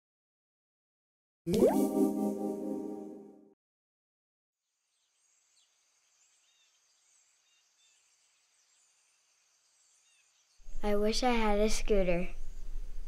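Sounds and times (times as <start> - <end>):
bird chirps: 5.0 - 10.8.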